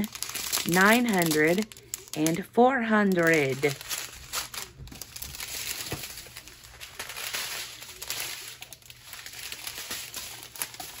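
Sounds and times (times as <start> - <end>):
plastic bags rustling: 0.0 - 11.0.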